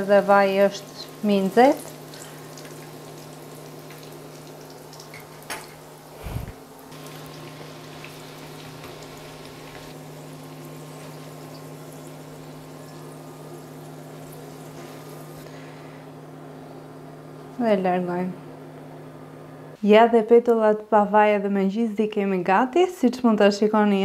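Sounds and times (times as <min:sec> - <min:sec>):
oil sizzling around frying dough: 0:00.0 - 0:17.4
steady low hum: 0:05.7 - 0:19.8.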